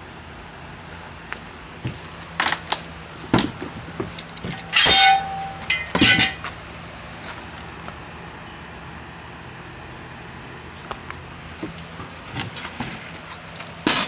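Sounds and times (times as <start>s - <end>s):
metal objects clinking and clanking: 4.4s - 6.5s
loud ringing metal clang: 4.5s - 6.4s.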